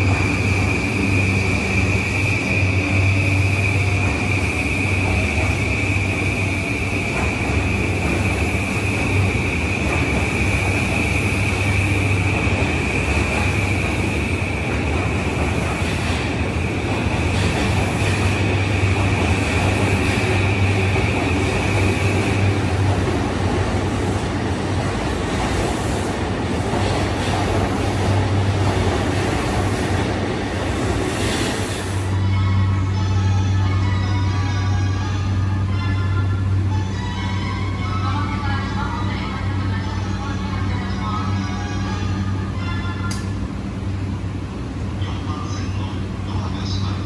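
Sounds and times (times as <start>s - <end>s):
high-pitched train tone: 0.0s - 24.8s, 30.8s - 43.5s
electric train rumbling: 0.0s - 47.0s.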